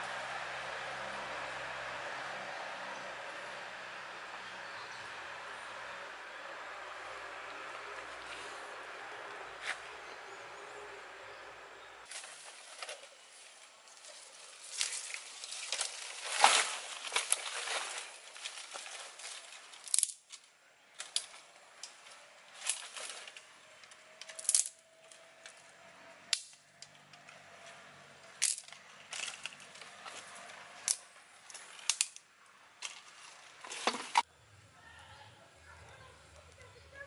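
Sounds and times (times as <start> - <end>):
bare feet rustling through leaves: 12.1 - 19.9, 22.5 - 23.4
dry sticks clacking and cracking: 13.9 - 34.2.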